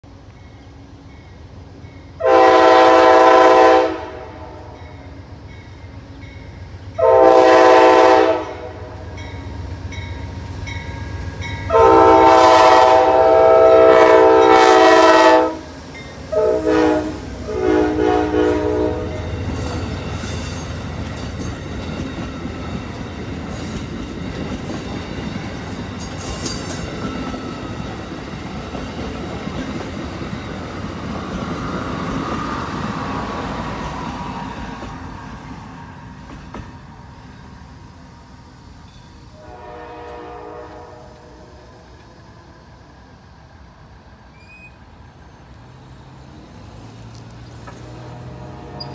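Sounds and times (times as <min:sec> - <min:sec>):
train horn blasts: 0:02.2 - 0:05.1, 0:07.0 - 0:09.4, 0:11.6 - 0:19.4, 0:39.3 - 0:42.1, 0:47.8 - 0:48.9
train wheels clacking on rails: 0:18.4 - 0:37.0.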